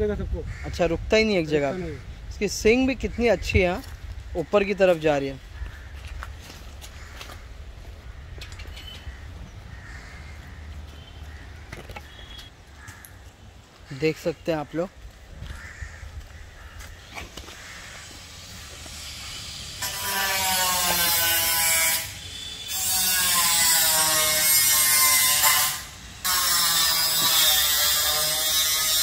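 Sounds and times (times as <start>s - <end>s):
faint outdoor sound: 0.0s - 29.0s
loud mechanical buzz: 17.9s - 29.0s.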